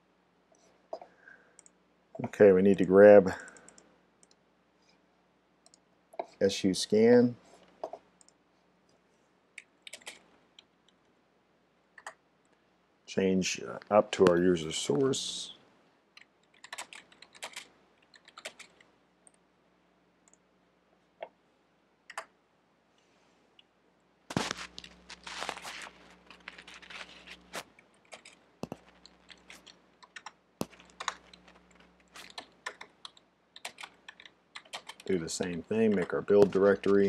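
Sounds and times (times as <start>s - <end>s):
computer keyboard typing: 9.8s - 10.2s, 16.2s - 18.8s, 27.9s - 37.0s.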